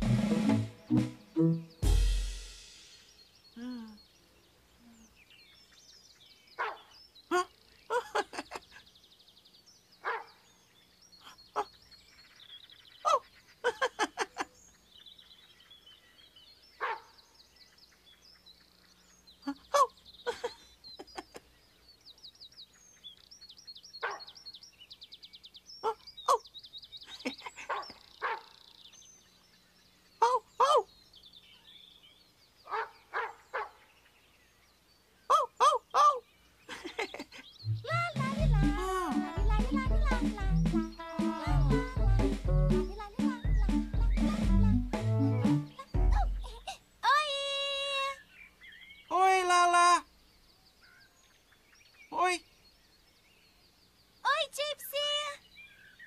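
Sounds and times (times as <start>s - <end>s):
birdsong with trills and chirps: 0.0s - 56.0s
dog barking: 6.6s - 6.9s, 10.0s - 10.4s, 16.8s - 17.1s, 24.0s - 24.3s, 27.7s - 28.6s, 32.7s - 33.8s.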